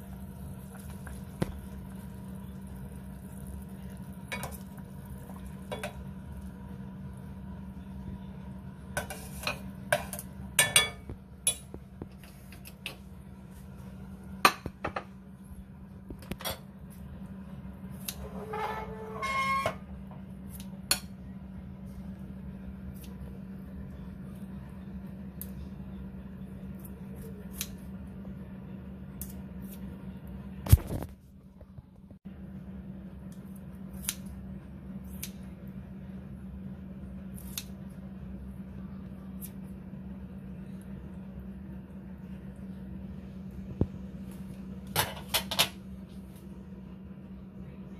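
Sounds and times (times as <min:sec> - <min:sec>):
steady low hum: 0:00.0 - 0:47.9
scissors snipping: 0:33.9 - 0:34.3, 0:35.1 - 0:35.4, 0:37.4 - 0:37.7.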